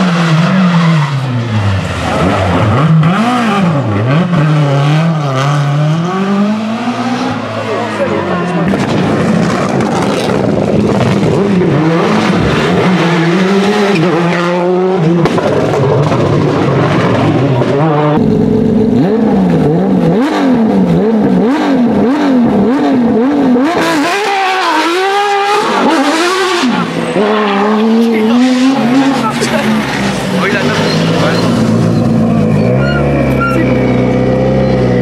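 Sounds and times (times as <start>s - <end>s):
rally car engines revving: 0.0s - 35.0s.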